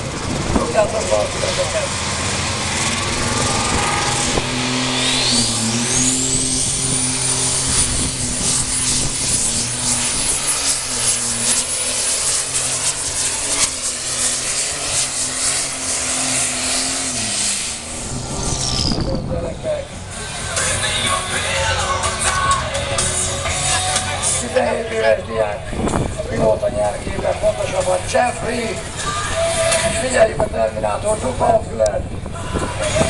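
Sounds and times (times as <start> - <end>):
diesel engine running flat out: 0.0 - 33.0
high turbo whistle: 3.0 - 10.8.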